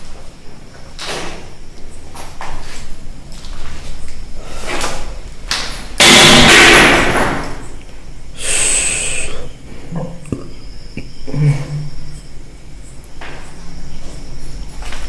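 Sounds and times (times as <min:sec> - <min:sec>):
loud ringing bang: 0:06.0 - 0:07.7.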